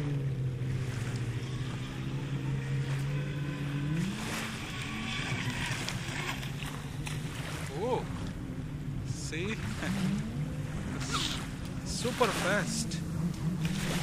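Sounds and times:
electric motor humming: 0.0 - 7.7.

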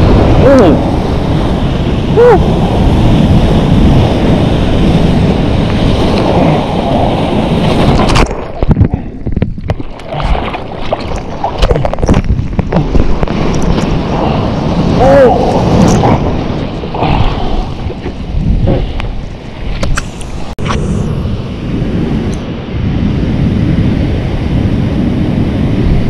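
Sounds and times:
surf rushing: 0.0 - 26.0
wind on microphone: 0.0 - 26.0
muffled water knocks and splashes: 7.7 - 14.1.

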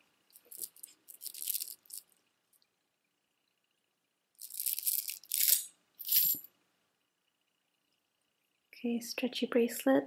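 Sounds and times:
shell beads clattering: 0.3 - 2.2, 4.4 - 6.5.

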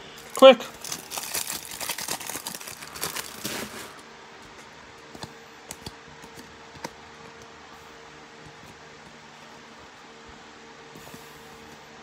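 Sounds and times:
wrapper crinkling and tearing: 0.2 - 4.0
stiff cards clicking: 5.0 - 7.5.

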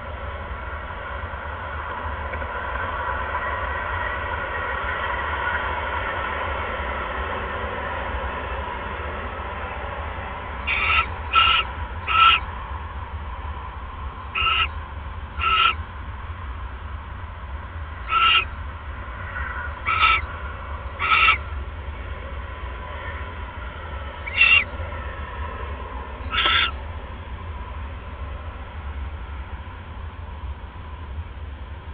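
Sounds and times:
steady low hum: 0.0 - 31.9
barn owl calls: 10.6 - 12.6, 14.2 - 15.9, 18.0 - 21.6, 24.2 - 24.8, 26.2 - 26.8.

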